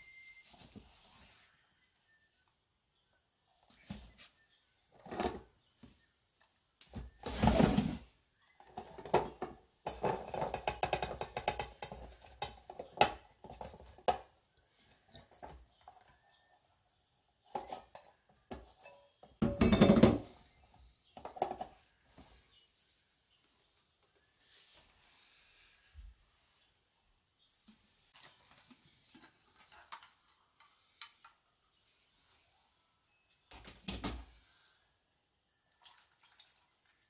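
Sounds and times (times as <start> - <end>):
metal bowl and box clattering: 18.8 - 20.4.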